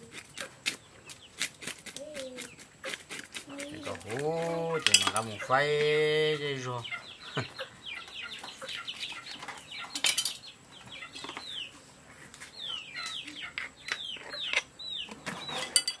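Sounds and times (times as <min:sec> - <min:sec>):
chickens peeping: 0:00.0 - 0:15.8
knife cutting on wooden block: 0:01.4 - 0:04.6.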